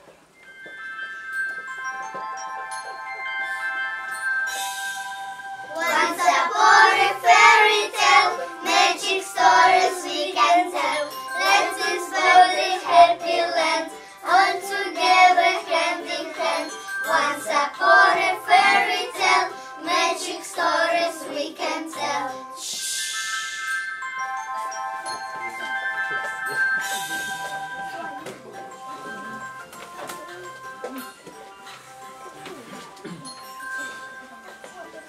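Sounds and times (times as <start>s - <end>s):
musical backing track: 0.0s - 35.0s
children singing: 5.7s - 22.8s.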